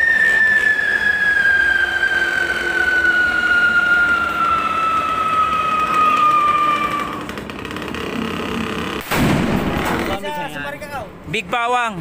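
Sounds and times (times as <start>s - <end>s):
whistling firecracker: 0.0s - 7.4s.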